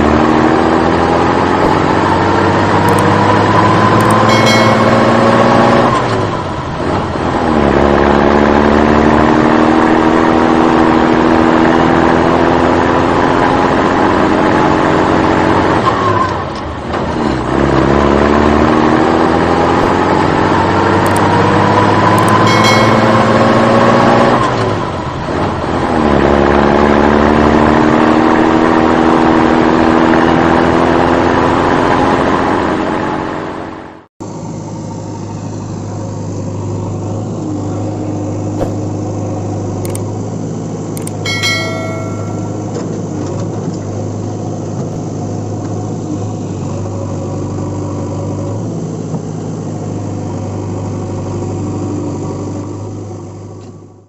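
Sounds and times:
truck engine revving: 0.0 - 15.8.

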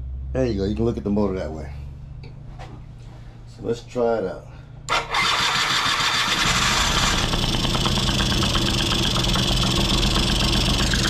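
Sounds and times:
electric starter cranking: 4.9 - 11.0
scooter engine idling: 5.0 - 11.0.

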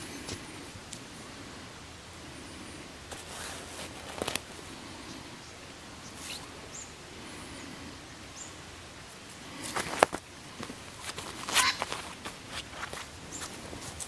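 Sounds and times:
soft rustles and clicks: 3.1 - 4.7, 9.1 - 14.0.

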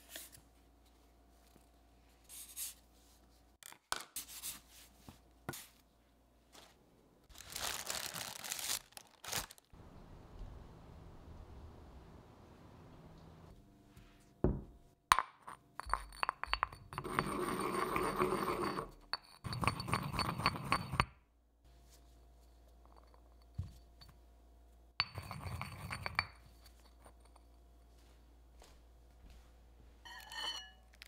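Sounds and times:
stone-on-stone grinding: 15.8 - 21.1, 25.0 - 27.4, 30.1 - 31.0.

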